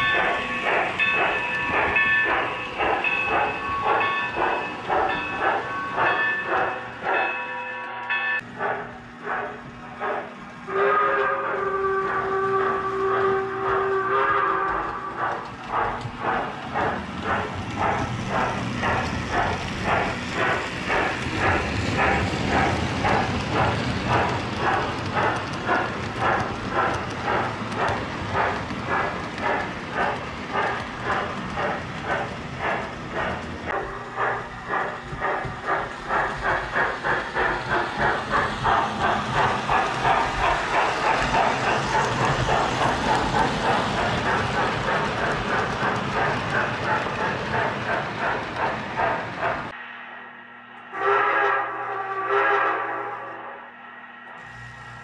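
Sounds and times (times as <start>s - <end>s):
train whistle: 8.6s - 15.5s, 50.2s - 55.0s
toy train rolling on track: 12.8s - 49.7s.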